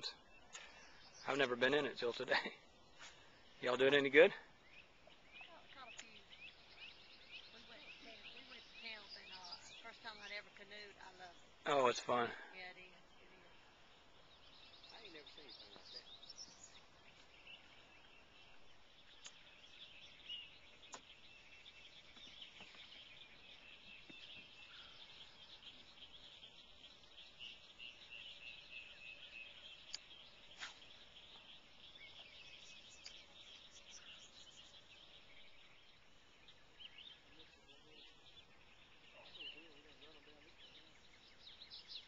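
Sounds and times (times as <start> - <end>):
birds chirping: 0.0 - 42.0.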